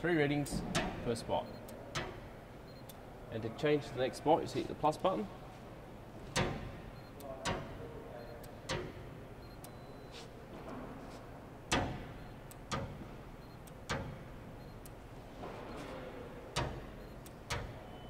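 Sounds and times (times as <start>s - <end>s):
gauge probe clicks: 6.4s - 10.1s, 11.7s - 15.0s, 16.5s - 17.8s.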